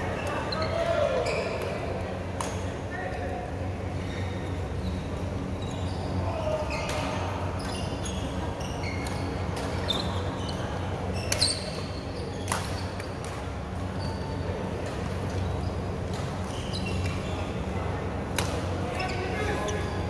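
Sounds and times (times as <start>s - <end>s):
steady low hum: 0.0s - 20.0s
shoes squeaking on court: 0.2s - 1.9s, 4.0s - 17.7s.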